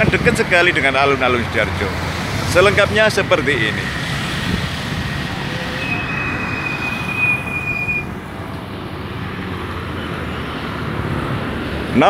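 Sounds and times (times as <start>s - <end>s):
motorcycles passing: 0.0s - 12.0s
thin high squeal: 5.3s - 8.2s.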